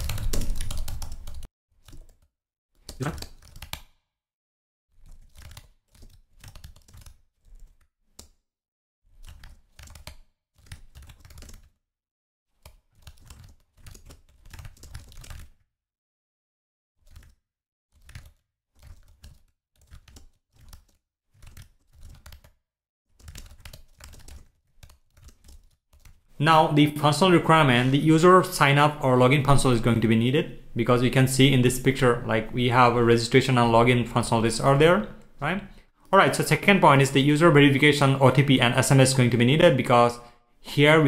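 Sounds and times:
keyboard typing: 0.0 - 3.9, 5.1 - 8.3, 9.2 - 11.7, 12.6 - 15.5, 17.0 - 17.4, 18.0 - 22.5, 23.2 - 26.2.

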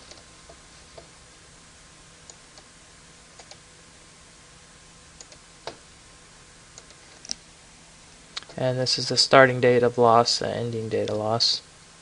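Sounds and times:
faint room hum: 0.0 - 12.0
computer mouse clicks: 3.4 - 3.6, 5.2 - 5.8, 6.8 - 7.4.

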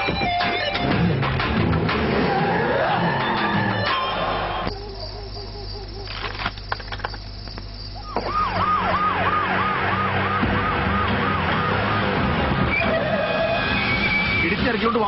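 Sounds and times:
police siren yelping: 8.0 - 14.4.

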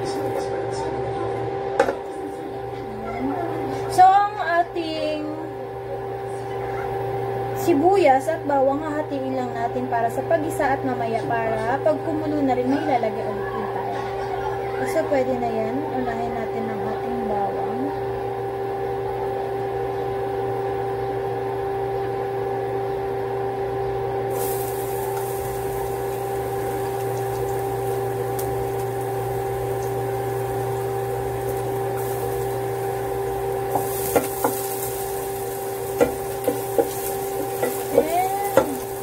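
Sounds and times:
electrical hum: 0.0 - 39.0
garlic sizzling in oil: 24.3 - 39.0.

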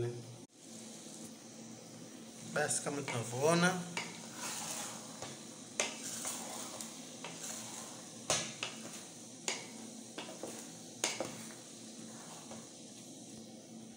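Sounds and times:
hiss from heating pot: 0.0 - 13.9
wooden spoon stirring spaghetti: 2.2 - 13.3
spoon knocking on metal pot: 9.5 - 11.4.

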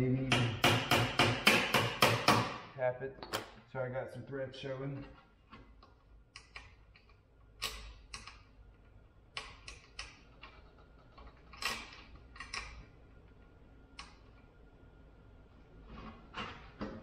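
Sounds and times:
bolts and nuts clicking: 4.9 - 14.5.

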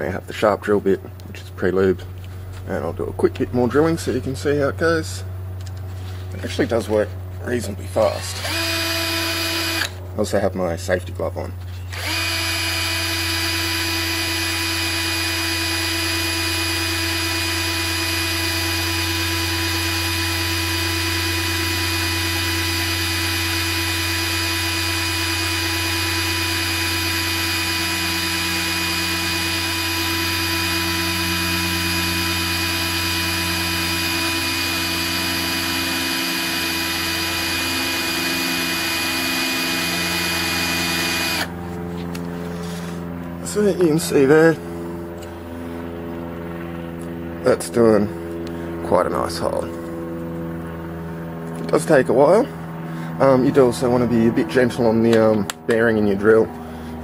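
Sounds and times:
cordless drill whining: 8.0 - 10.0, 11.8 - 41.6.

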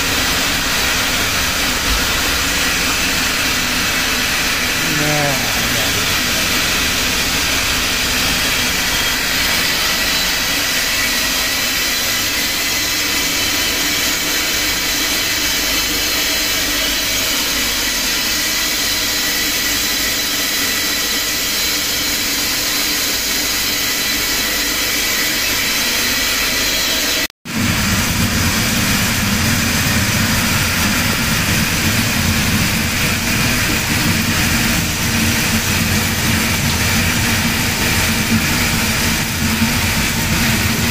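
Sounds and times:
deep machine hum: 0.0 - 9.2
wire drawing machine whirring: 18.7 - 40.9.

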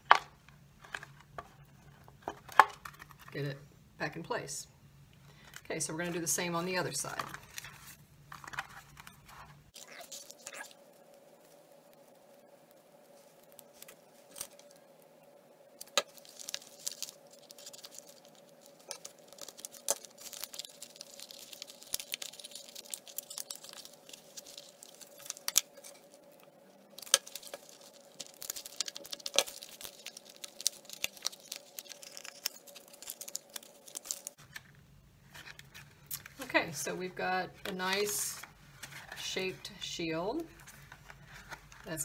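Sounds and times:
faint steady hum: 0.0 - 42.0
plastic clicks and crinkles: 15.8 - 36.5.

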